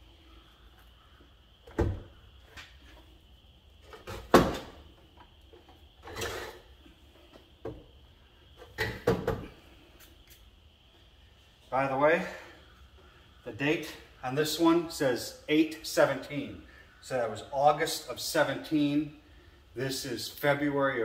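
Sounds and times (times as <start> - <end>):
clunks and knocks of parts: 3.8 - 8.0, 8.6 - 9.7.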